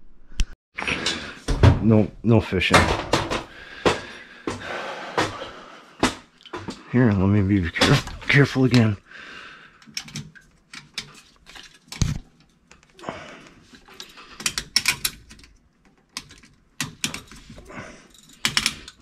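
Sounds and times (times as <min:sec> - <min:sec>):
hand tools clicking and tapping: 0:09.8 - 0:19.0.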